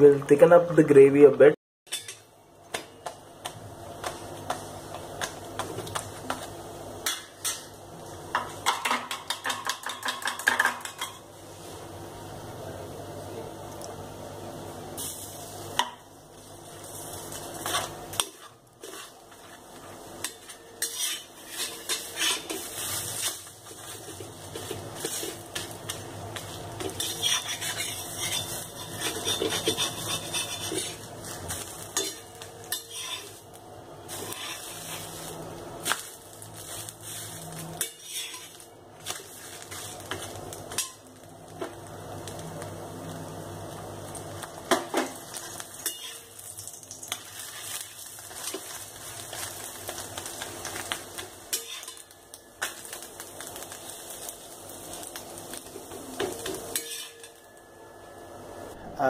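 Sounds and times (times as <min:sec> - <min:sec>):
metal spatula scraping a pan: 0:01.9 - 0:02.2, 0:20.2 - 0:25.8, 0:26.4 - 0:33.4, 0:34.1 - 0:35.3, 0:36.7 - 0:41.0, 0:45.8 - 0:46.3, 0:51.5 - 0:52.1, 0:56.7 - 0:57.4
light sizzling: 0:10.6 - 0:58.8.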